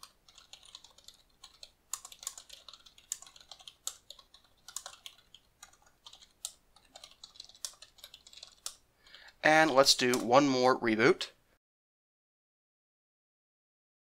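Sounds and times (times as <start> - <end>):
typing on computer keyboard: 0.0 - 9.3, 9.9 - 10.4.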